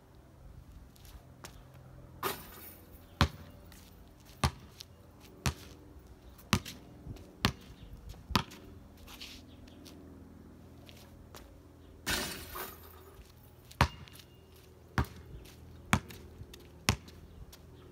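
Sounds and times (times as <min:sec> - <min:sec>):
basketball bouncing on concrete: 0:02.2 - 0:05.8, 0:06.4 - 0:08.7, 0:12.1 - 0:17.6.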